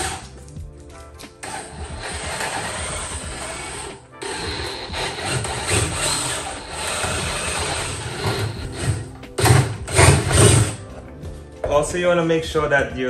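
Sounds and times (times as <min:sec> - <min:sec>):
cordless drill boring into wood: 0:01.4 - 0:10.8.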